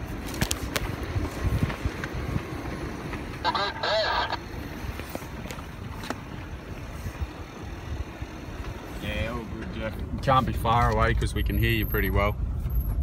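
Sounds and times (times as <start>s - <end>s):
engine and tyre rumble: 0.0s - 13.0s
voice over two-way radio: 3.4s - 4.5s.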